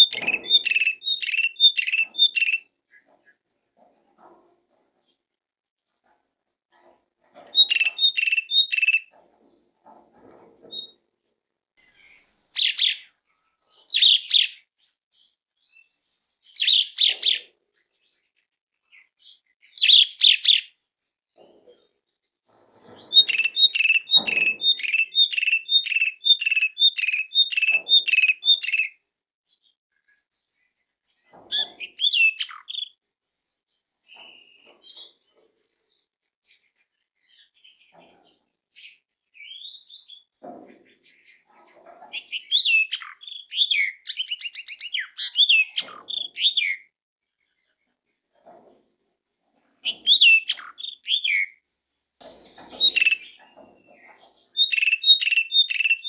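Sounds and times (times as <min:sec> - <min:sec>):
starling calling: 0:07.5 - 0:09.1, 0:23.0 - 0:28.9, 0:52.4 - 0:56.0.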